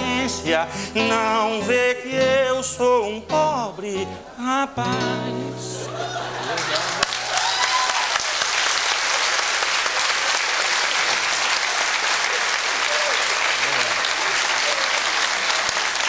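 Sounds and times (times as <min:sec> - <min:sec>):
studio audience applauding: 0:05.8 - 0:16.0.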